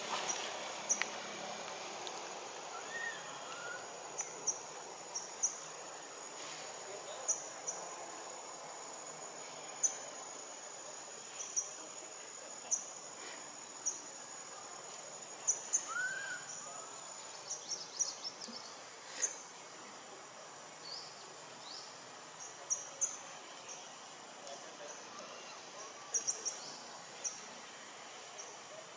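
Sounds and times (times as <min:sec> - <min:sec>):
high insect drone: 0:00.0 - 0:28.9
arched bird whistle: 0:15.7 - 0:16.6.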